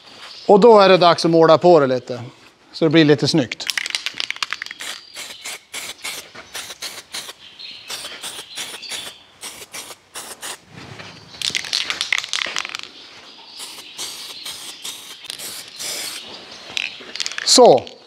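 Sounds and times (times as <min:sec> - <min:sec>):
spray can rattling clicks: 0:03.6 - 0:07.3, 0:11.4 - 0:12.9, 0:13.6 - 0:16.2
spray paint hiss: 0:04.3 - 0:10.6, 0:13.5 - 0:16.3.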